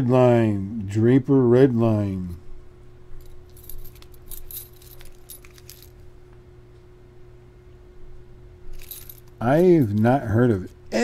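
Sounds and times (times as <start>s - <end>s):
faint hum: 0.0s - 11.0s
keys clinking and jingling: 3.2s - 6.1s, 8.7s - 10.3s.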